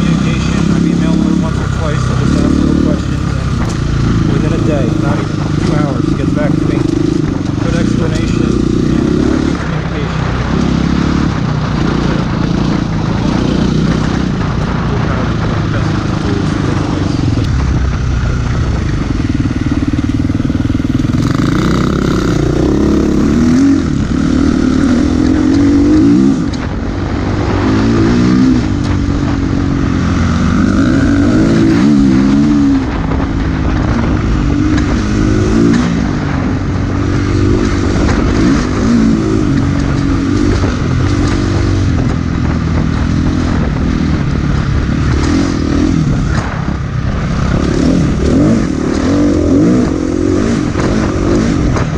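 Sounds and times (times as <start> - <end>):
motorcycle engine revving: 0.0 - 51.9
wind noise on microphone: 0.0 - 51.9.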